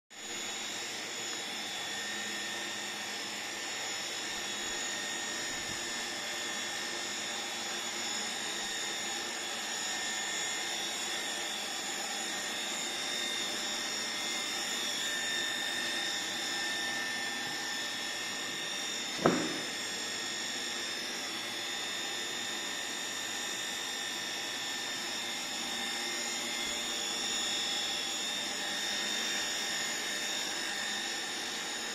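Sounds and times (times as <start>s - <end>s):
sharp knock: 19.2s - 19.7s.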